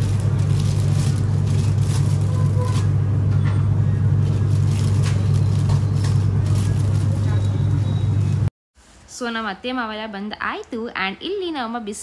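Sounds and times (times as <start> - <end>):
low machine hum: 0.0 - 8.5.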